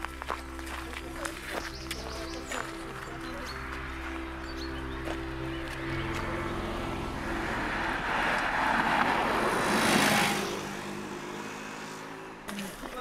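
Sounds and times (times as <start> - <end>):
motorcycle passing by: 2.2 - 12.5.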